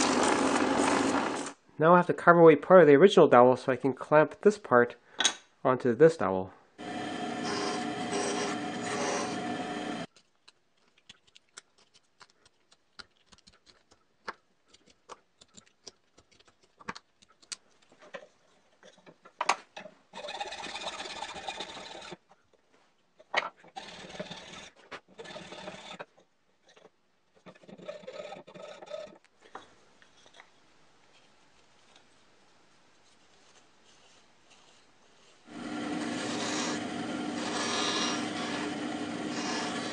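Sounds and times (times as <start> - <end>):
bandsaw cutting plywood: 0.0 - 1.6, 6.8 - 10.1, 35.5 - 39.9
hacksaw sawing plywood: 7.2 - 10.0, 20.2 - 22.2, 23.7 - 26.1, 27.5 - 29.2, 35.5 - 39.9
wooden parts clicking and knocking: 10.1 - 22.4, 23.2 - 24.4.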